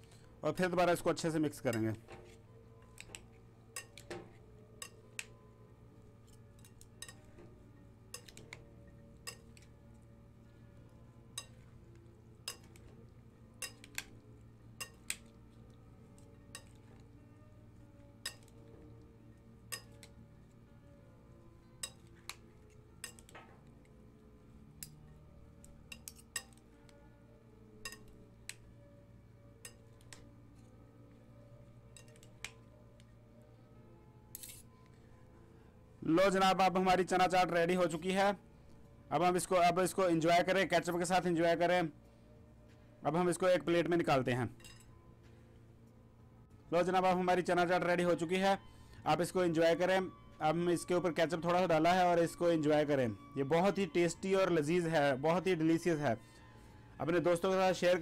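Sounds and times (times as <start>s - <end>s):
spoon clinking in glass bowl: 13.6s - 14.0s, 19.7s - 20.0s.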